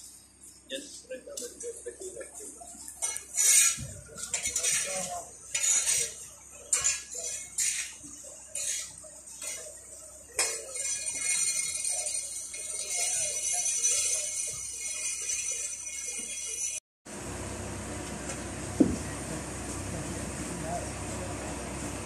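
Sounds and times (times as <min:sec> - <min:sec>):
metal scraper scraping hull: 0:03.0 - 0:09.7
metallic clinks: 0:10.4 - 0:16.8.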